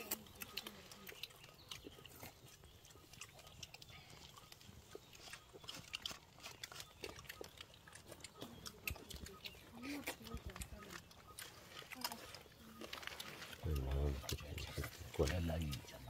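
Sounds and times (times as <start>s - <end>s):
people chewing and lip smacking: 0.0s - 16.0s.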